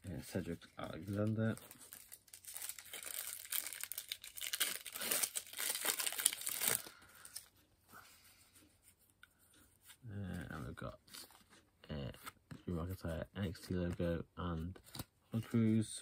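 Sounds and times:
card pack wrapper tearing: 1.1 - 7.4.

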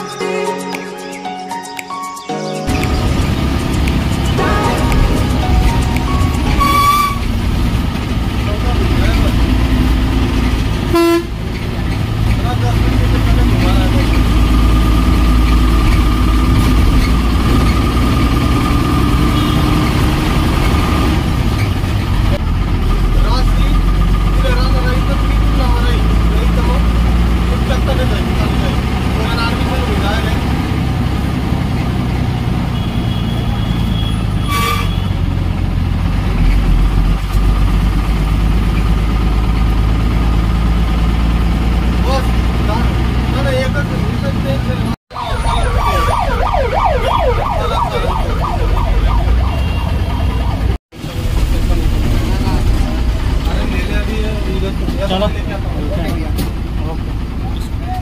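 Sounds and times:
brief sharp sound: 2.7 - 7.4
bus engine rumbling: 2.7 - 58.0.

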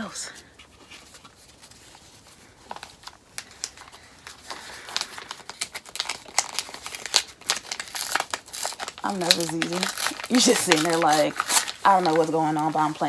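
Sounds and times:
paper envelope tearing open: 2.7 - 13.0.

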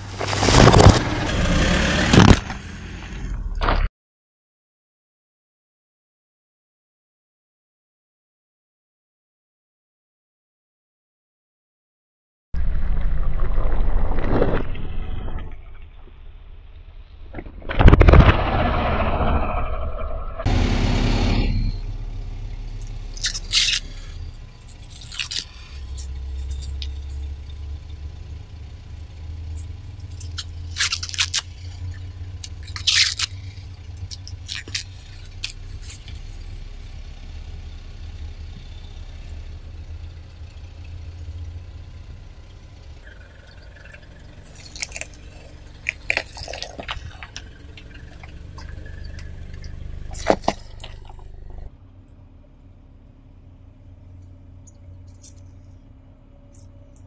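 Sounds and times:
corn husks tearing and rustling: 0.0 - 1.2, 22.8 - 27.3, 29.6 - 36.4, 44.5 - 48.9, 49.5 - 51.3
low steady rumble: 12.6 - 57.0.

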